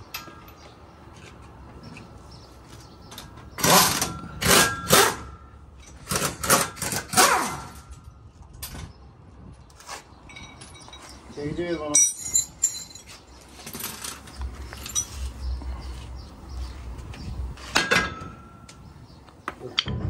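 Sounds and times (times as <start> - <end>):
pneumatic impact wrench bursts: 3.6 - 5.4.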